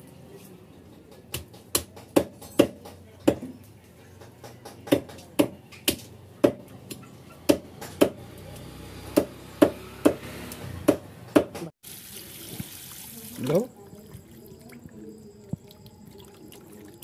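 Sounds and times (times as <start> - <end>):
cleaver chopping on wooden block: 7.4 - 8.2.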